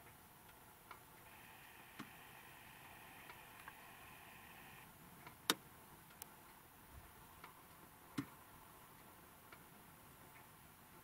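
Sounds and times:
faint steady hiss: 0:00.0 - 0:11.0
sharp clicks: 0:01.3 - 0:04.9.

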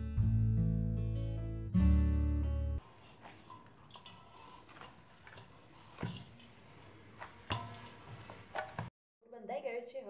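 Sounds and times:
dough squishing: 0:02.8 - 0:08.9.

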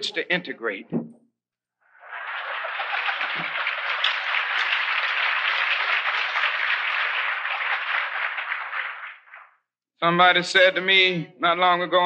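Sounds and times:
audience applauding: 0:01.9 - 0:09.6.

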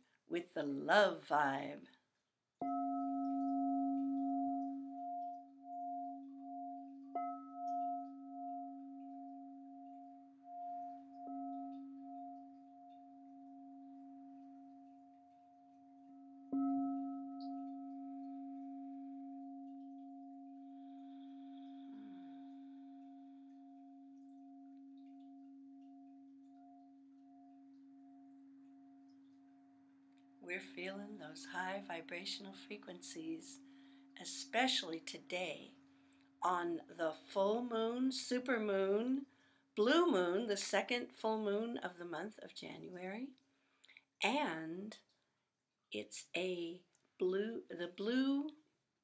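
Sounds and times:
singing bowl ringing: 0:02.6 - 0:32.8.

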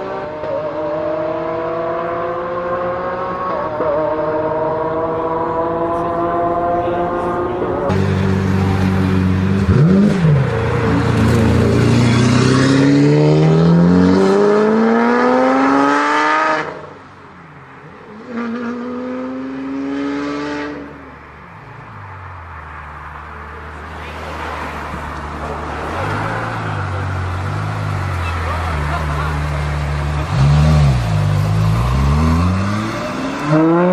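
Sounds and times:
car engine accelerating: 0:00.0 - 0:17.0, 0:23.7 - 0:33.9.

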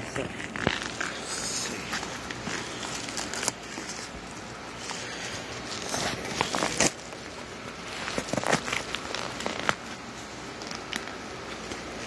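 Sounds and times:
padded envelope crinkling: 0:00.0 - 0:12.0.

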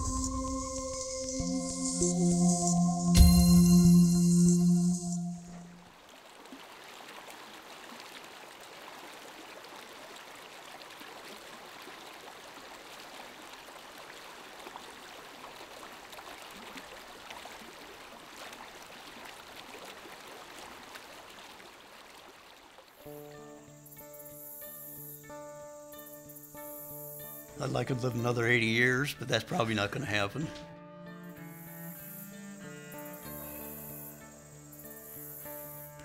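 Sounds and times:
stream water rushing: 0:05.7 - 0:23.3
small trickling splashes: 0:05.9 - 0:23.3.

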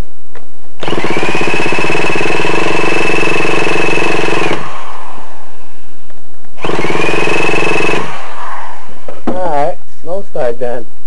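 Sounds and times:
small engine whining: 0:00.8 - 0:05.4, 0:06.6 - 0:09.2.

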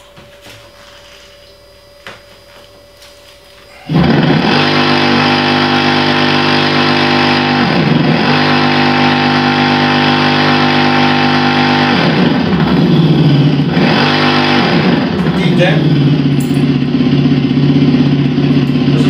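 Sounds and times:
simulated motorcycle engine idling: 0:03.9 - 0:19.0.

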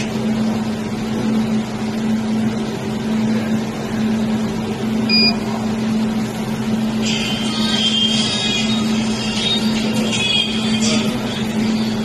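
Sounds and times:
machine humming: 0:00.0 - 0:12.0
short beep: 0:05.1 - 0:05.4.

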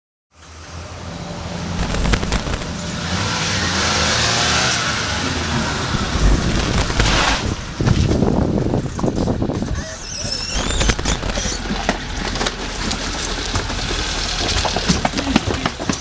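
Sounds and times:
car engine revving: 0:01.8 - 0:07.4.

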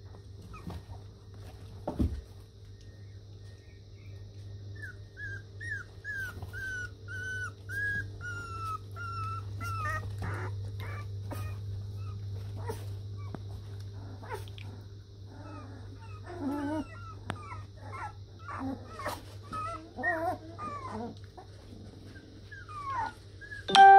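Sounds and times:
low steady hum: 0:00.0 - 0:23.9
puppies whimpering and squeaking: 0:04.7 - 0:14.6, 0:15.3 - 0:23.9.

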